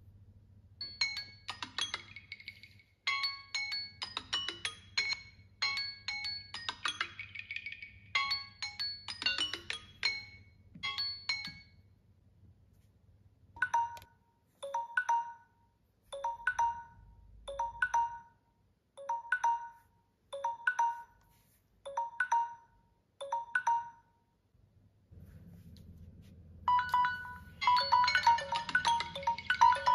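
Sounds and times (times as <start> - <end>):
phone timer chime melody: 0.8 - 11.9, 13.6 - 21.3, 21.9 - 24.3, 26.7 - 29.9
repeating phone alert tone: 26.7 - 29.9.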